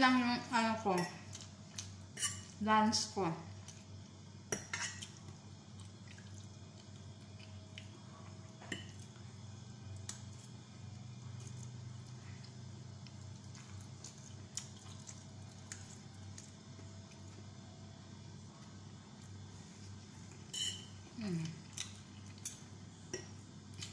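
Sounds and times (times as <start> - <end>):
low steady hum: 0.0 - 23.9
wet slurping and chewing: 5.7 - 7.9.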